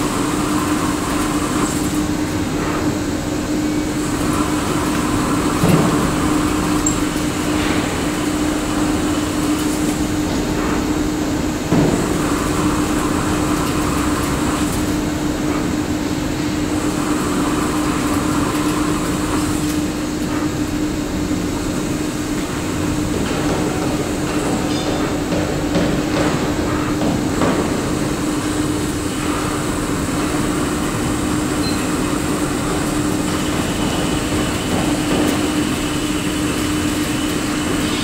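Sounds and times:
lathe mechanical hum: 0:00.0 - 0:38.0.

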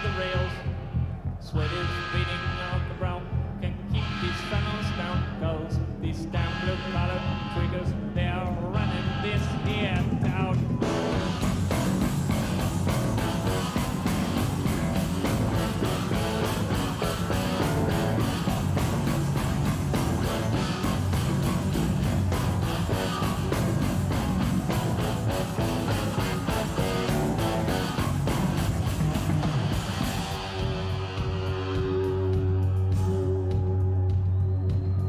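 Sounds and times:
instrumental rock band playing: 0:08.8 - 0:33.8
drum kit beat with cymbals: 0:08.8 - 0:35.0.

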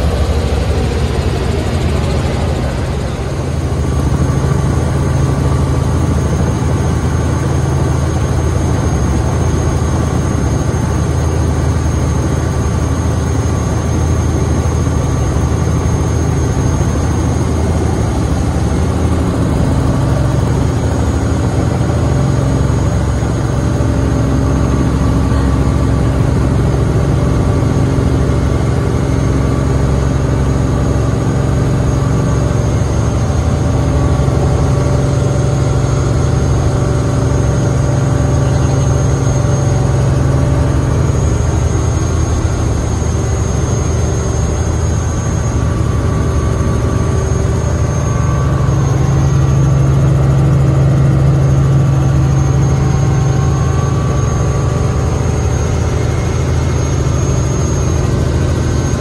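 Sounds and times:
helicopter engine and rotor drone: 0:00.0 - 0:59.0.

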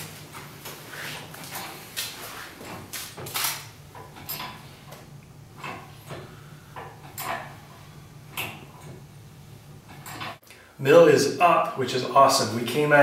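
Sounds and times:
hydraulic pump clunks and squeaks: 0:02.5 - 0:05.0, 0:05.6 - 0:09.0, 0:09.8 - 0:10.4.

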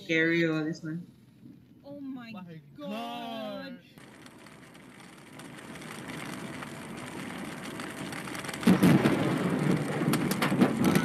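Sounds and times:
car road noise: 0:00.0 - 0:11.0
steady rain: 0:03.9 - 0:11.0
thunder crackling: 0:04.0 - 0:11.0.

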